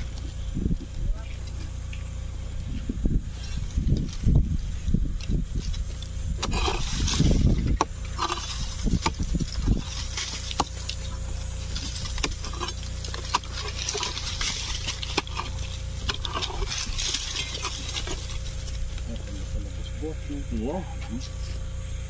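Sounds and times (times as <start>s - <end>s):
steady low rumble: 0.0s - 22.0s
hand digging in soil: 5.2s - 19.9s.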